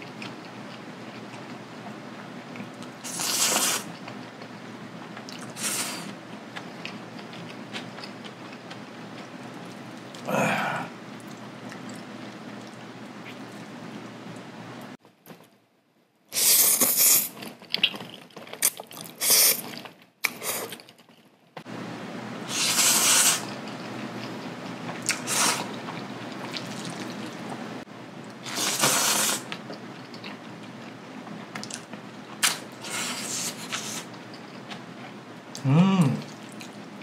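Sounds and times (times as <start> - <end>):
wet noodle slurps: 3.0 - 3.9, 22.5 - 23.5, 25.0 - 25.8, 28.4 - 29.5, 32.4 - 34.1
wet chewing: 25.0 - 27.6.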